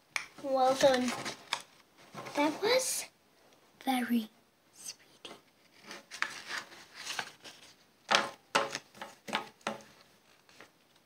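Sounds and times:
paper rustling and tapping: 0.2s - 2.6s, 5.8s - 11.0s.

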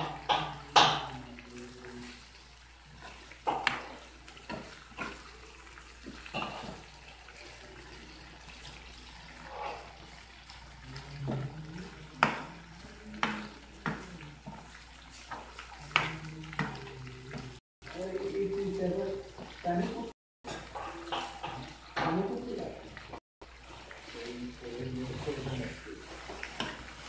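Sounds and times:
ladle clinking and scraping pan: 6.2s - 6.9s.

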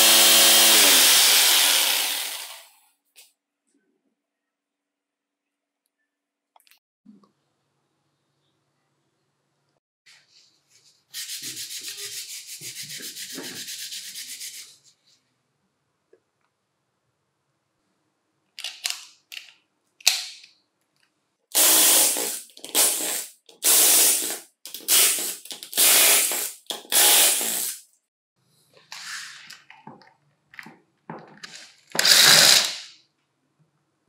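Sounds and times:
electric screwdriver running: 0.0s - 2.7s, 32.0s - 32.7s.

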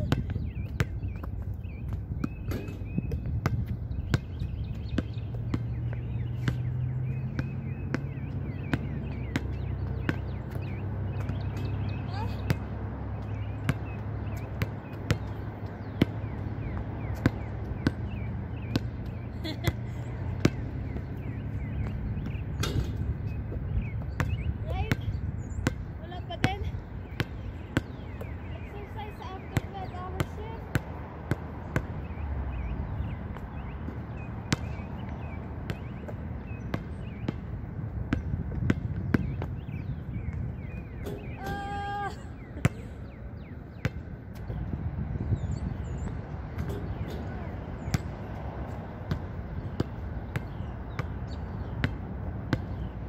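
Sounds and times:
basketball bouncing on hard court: 0.0s - 32.1s, 33.0s - 41.5s, 45.3s - 52.9s
basketball hitting hoop: 22.3s - 23.0s.

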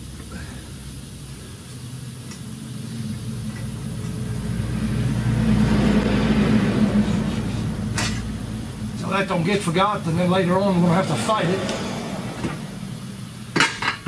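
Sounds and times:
motor vehicle passing: 2.6s - 13.6s.

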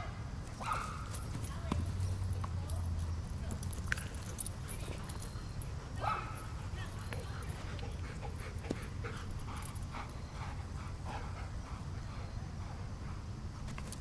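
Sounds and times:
dog panting: 4.2s - 13.6s.

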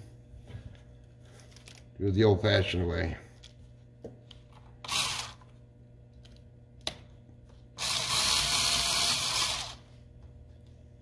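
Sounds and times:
electric screwdriver running: 4.9s - 5.4s, 7.8s - 9.8s.

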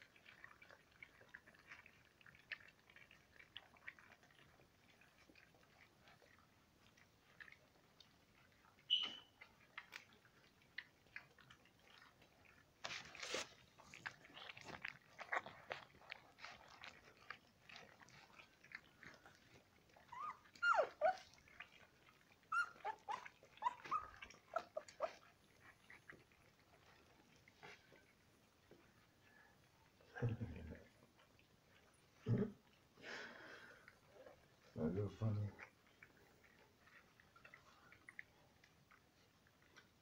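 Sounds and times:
puppies lapping and smacking: 0.0s - 40.0s
puppies whimpering and squeaking: 8.8s - 9.4s, 19.2s - 27.8s.

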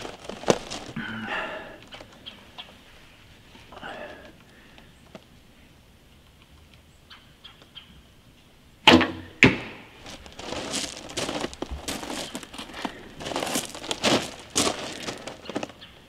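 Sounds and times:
rustling and crinkling: 0.0s - 1.2s, 10.0s - 16.0s
bowstring twang: 8.8s - 9.9s
arrow striking target: 8.9s - 9.9s.

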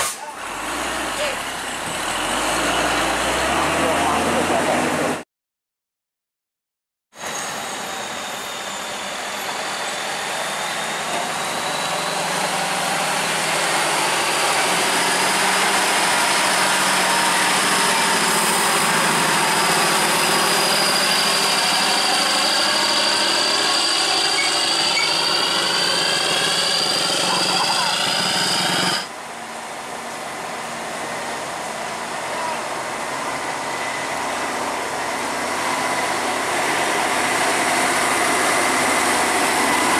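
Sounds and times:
road noise: 0.0s - 5.2s, 7.2s - 39.9s
diesel truck engine running: 9.7s - 39.9s
thin high whine: 19.9s - 29.1s.

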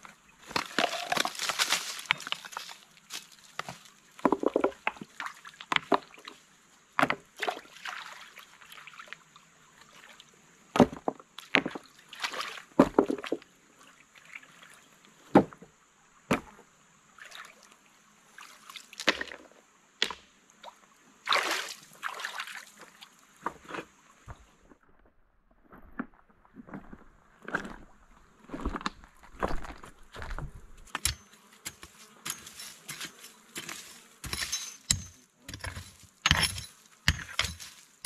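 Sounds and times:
stones clacking together: 0.5s - 6.1s, 28.6s - 38.0s
water sloshing: 21.3s - 23.0s.

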